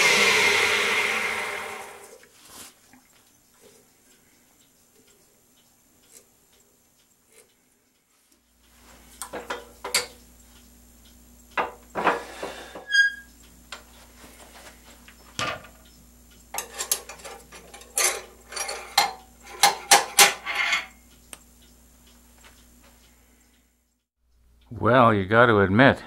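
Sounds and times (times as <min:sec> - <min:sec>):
faint steady hum: 0:00.0 - 0:26.0
metal parts clanking: 0:16.6 - 0:21.0.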